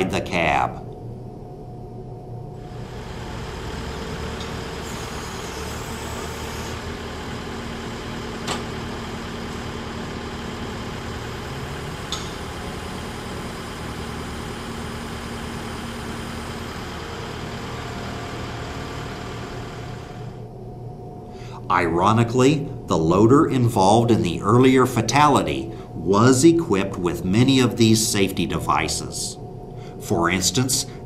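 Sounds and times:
loader engine running: 0:02.6 - 0:20.5.

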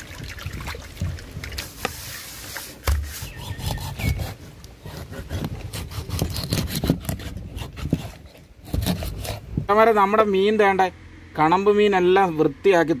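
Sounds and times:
fish rubbed against steel basin: 0:01.6 - 0:04.5
knife chopping on wooden block: 0:02.8 - 0:09.4.

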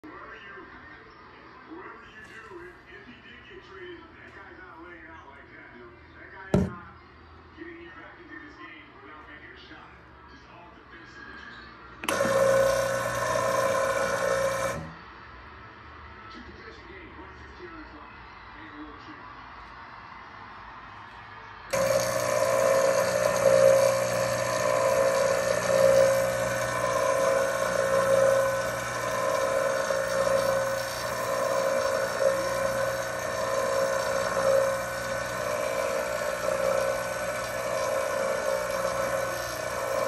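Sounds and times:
espresso machine pump humming: 0:06.6 - 0:06.8, 0:12.0 - 0:15.0, 0:21.7 - 0:40.0.

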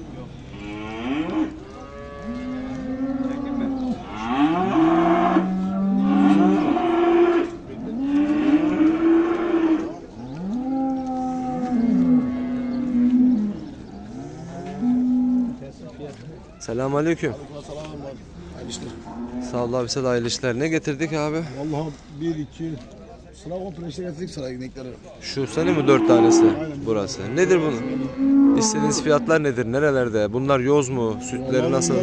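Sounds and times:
cows mooing: 0:00.5 - 0:15.6, 0:25.4 - 0:29.4, 0:30.8 - 0:32.0.

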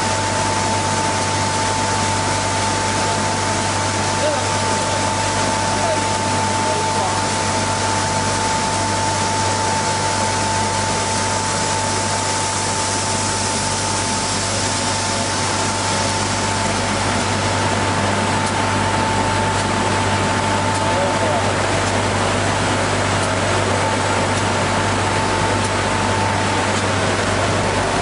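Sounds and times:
constant high whine: 0:00.0 - 0:28.0.

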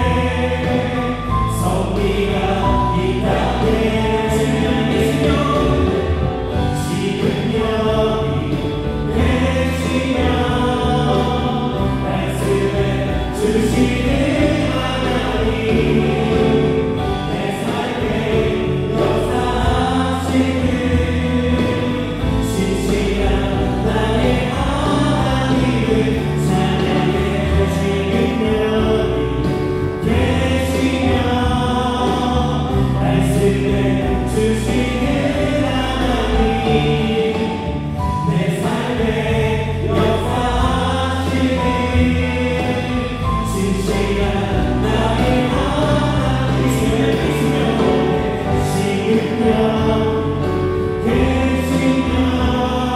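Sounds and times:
drum and cymbal hits: 0:00.0 - 0:52.9
worship band playing: 0:00.0 - 0:52.9.

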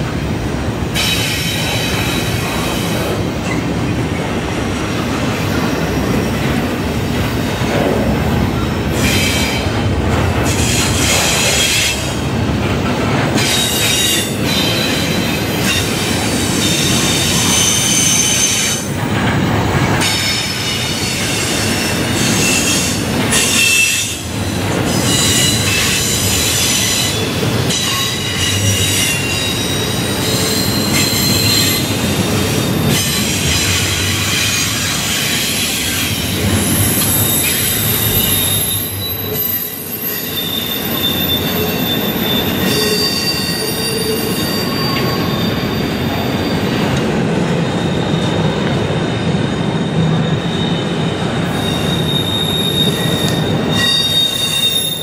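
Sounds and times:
train wheels rumbling on rails: 0:00.0 - 0:55.0
high-pitched wheel squeals: 0:24.9 - 0:32.0, 0:36.7 - 0:46.8, 0:49.8 - 0:55.0.

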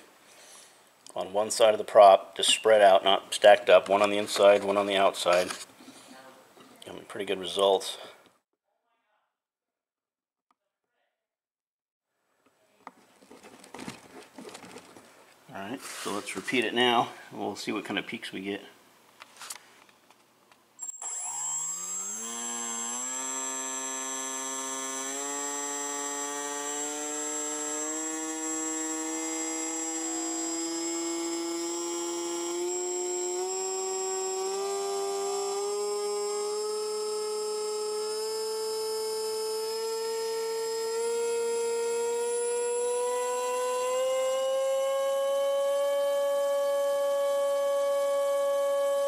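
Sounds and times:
electric motor whine rising: 0:20.8 - 0:49.0.

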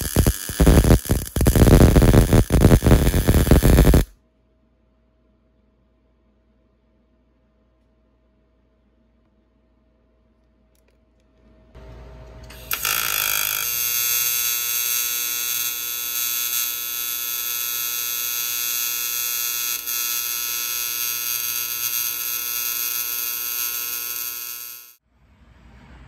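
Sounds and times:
welding arc buzzing: 0:00.0 - 0:04.1, 0:12.5 - 0:25.0.

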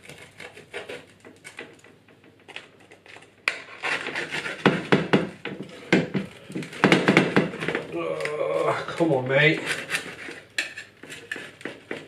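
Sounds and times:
knife sawing crusty bread: 0:00.0 - 0:01.2, 0:03.5 - 0:04.9.

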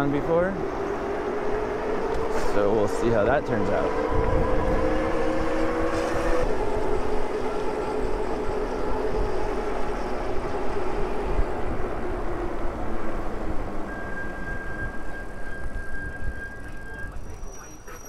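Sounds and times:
wind buffeting microphone: 0:00.6 - 0:17.5.

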